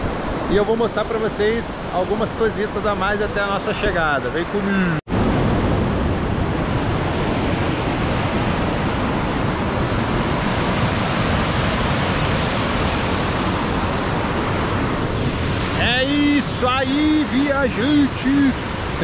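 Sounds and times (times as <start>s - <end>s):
waterfall rushing: 5.6s - 19.0s.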